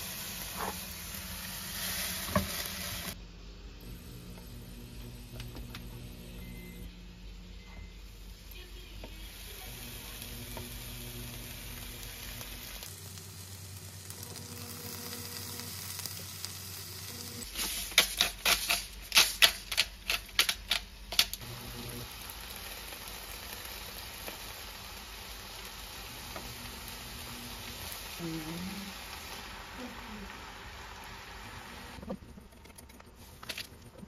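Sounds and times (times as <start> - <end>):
eggplant sizzling in a frying pan: 0.0 - 3.2, 9.1 - 19.5, 21.4 - 32.0.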